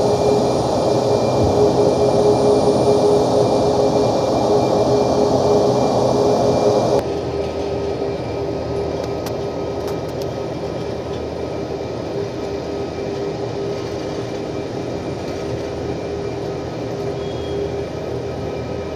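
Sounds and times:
jet engines at takeoff power: 0.0 - 18.9.

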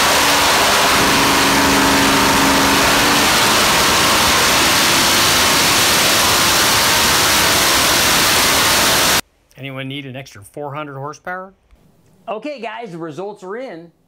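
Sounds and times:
supercharged engine running loud: 0.0 - 9.2.

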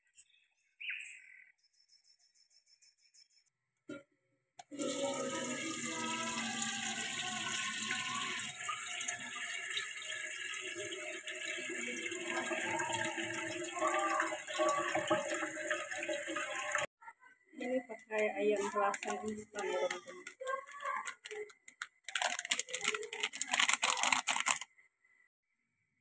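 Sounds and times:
tap water running into a wok: 4.6 - 16.9.

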